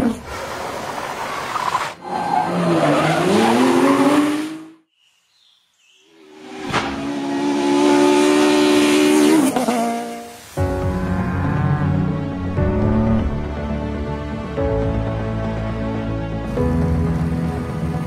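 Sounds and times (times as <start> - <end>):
rally car engine revving: 6.4 - 10.3.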